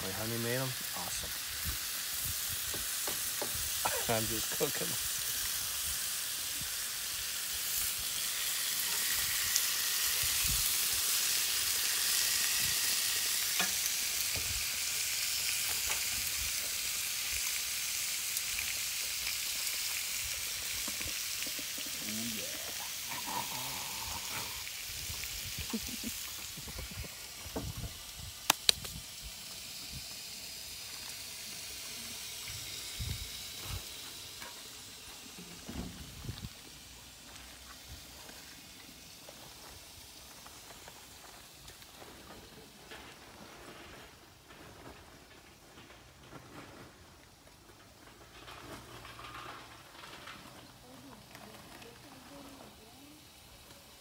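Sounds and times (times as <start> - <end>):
meat sizzling on a grill: 0.0 - 54.0
sharp clicks: 28.4 - 29.0.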